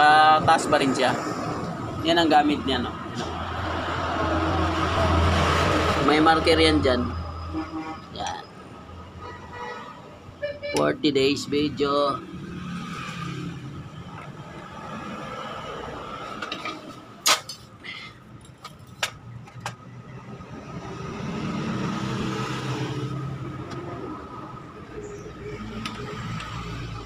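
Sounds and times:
metal engine parts clicking: 16.2s - 19.8s.

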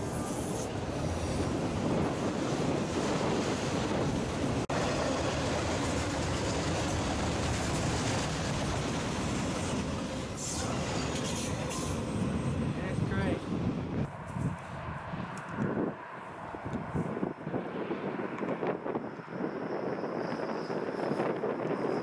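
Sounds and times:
freight train rolling past: 0.0s - 14.2s, 18.7s - 22.0s.

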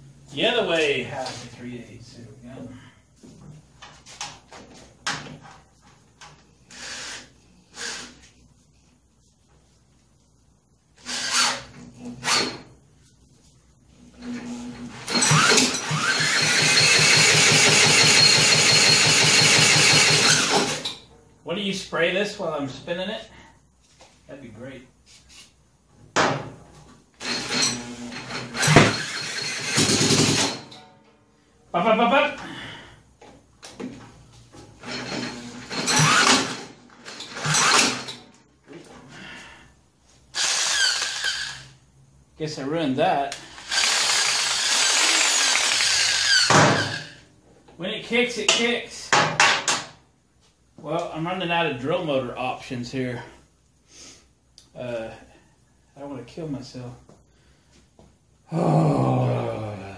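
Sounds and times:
electric drill whining: 6.7s - 8.2s, 11.0s - 12.5s, 15.1s - 20.8s, 27.2s - 30.6s, 40.3s - 41.8s, 43.4s - 47.2s.

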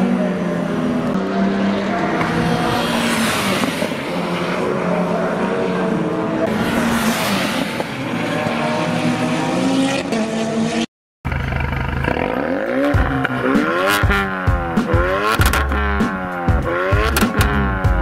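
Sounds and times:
race car engine running hard: 11.3s - 17.4s
electronic music with sweeping tones: 12.1s - 18.0s.

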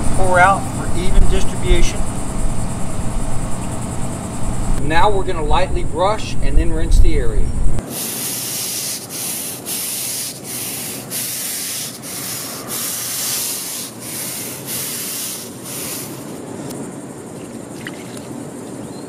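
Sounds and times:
brush scrubbing pavement: 7.8s - 16.7s.

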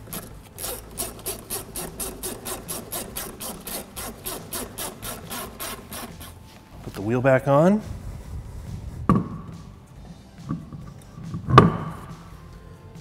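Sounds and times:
hand ratchet clicking: 0.0s - 6.4s.

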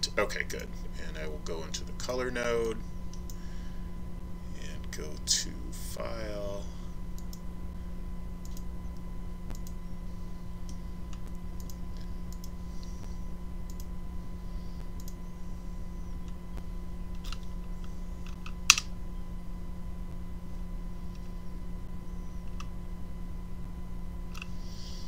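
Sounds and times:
low electrical hum: 0.0s - 25.0s.

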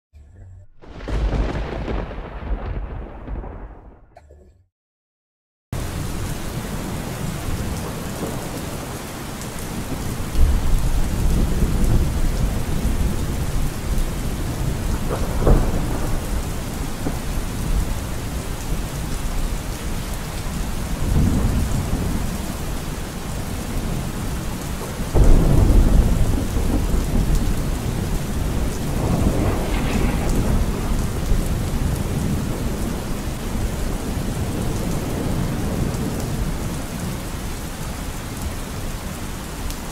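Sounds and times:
thunder rumbling: 0.2s - 4.2s, 5.8s - 39.9s
steady rain: 0.8s - 3.7s, 5.8s - 39.9s.

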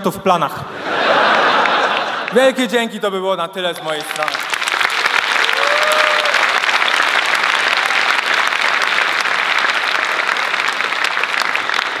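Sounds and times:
audience applauding: 3.7s - 12.0s
audience cheering: 3.8s - 12.0s.

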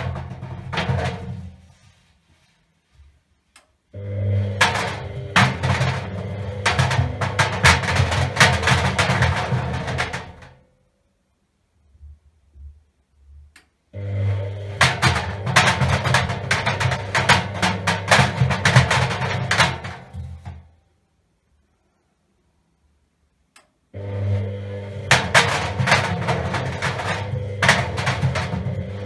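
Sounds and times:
balls knocking in washing machine drum: 0.0s - 1.8s, 4.3s - 10.6s, 14.3s - 20.8s, 24.8s - 29.0s
washing machine drum humming: 0.0s - 1.9s, 4.0s - 10.7s, 13.9s - 20.8s, 24.0s - 29.0s.

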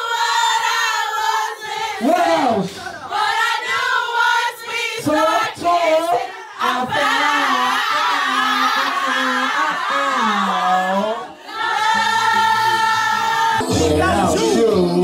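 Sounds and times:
group of people singing: 0.0s - 15.0s
music: 11.6s - 15.0s.

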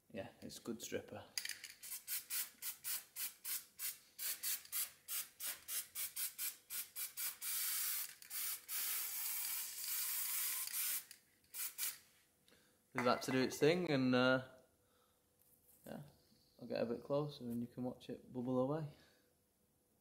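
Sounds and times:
aerosol can spraying: 1.8s - 12.0s.

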